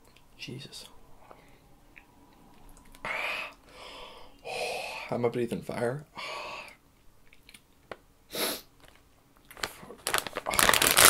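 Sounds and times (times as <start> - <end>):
man breathing out hard: 3.0 - 5.1
plastic bag crinkling: 8.8 - 11.0.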